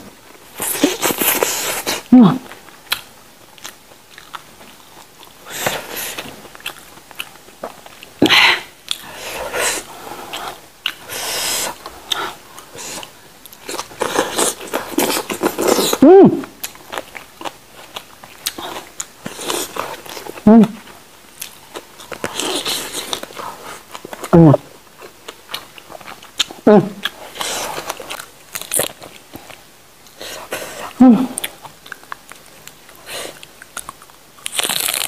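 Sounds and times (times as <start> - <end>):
wet chewing and lip smacking: 0.6 - 8.2, 10.3 - 20.4, 31.4 - 35.0
person humming: 2.1 - 2.5, 15.9 - 16.6, 20.4 - 20.8, 24.3 - 24.7, 26.7 - 27.0, 31.0 - 31.4
crunchy bites: 33.7 - 35.0.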